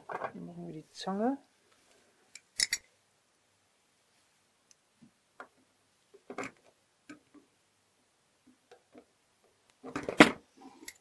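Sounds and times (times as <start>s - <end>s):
pliers clacking against metal: 2.4s - 2.9s.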